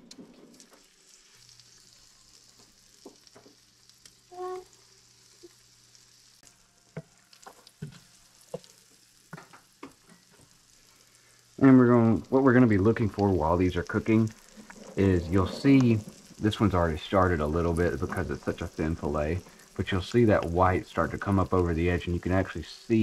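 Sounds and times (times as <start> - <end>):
pops and crackles of frying: 0.0 - 23.0
fish sizzling in butter: 0.3 - 23.0
brief high squeak: 4.3 - 4.7.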